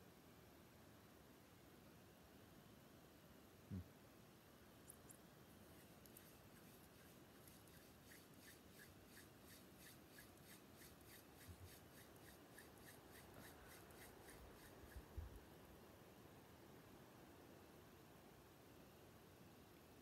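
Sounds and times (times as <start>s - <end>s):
palms rubbing together: 4.9s - 15.2s.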